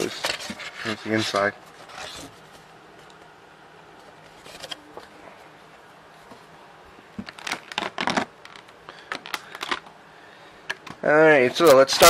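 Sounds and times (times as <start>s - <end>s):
plastic packaging crinkling: 7.2s - 9.9s.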